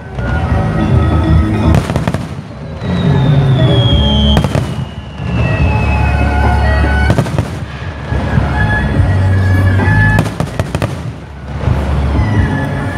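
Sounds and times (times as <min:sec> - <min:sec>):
music: 0:00.0 - 0:12.9
firework bangs: 0:01.6 - 0:08.8, 0:09.8 - 0:12.2
firework crackling: 0:01.6 - 0:12.9.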